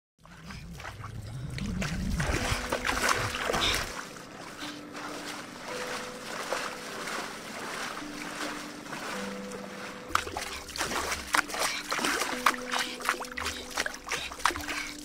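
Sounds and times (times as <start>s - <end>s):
low rumble: 0.2s - 3.9s
paddle splashing in water: 0.2s - 15.0s.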